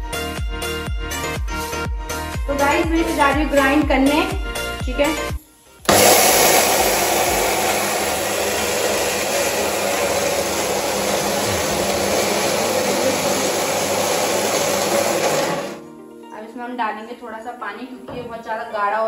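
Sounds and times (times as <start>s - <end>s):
mixer grinder grinding: 5.8s - 15.9s.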